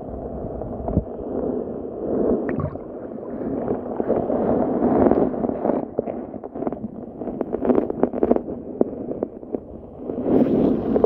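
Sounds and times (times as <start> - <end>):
underwater gurgling rush: 2.1 - 5.9.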